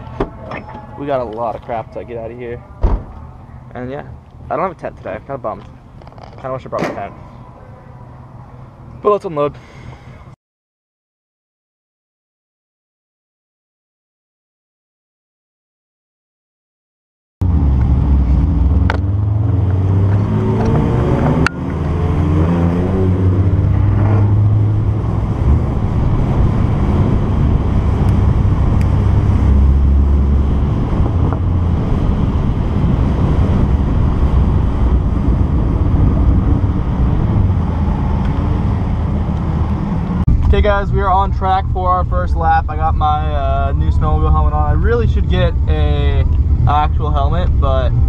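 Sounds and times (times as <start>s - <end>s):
car engine revving: 17.4s - 48.0s.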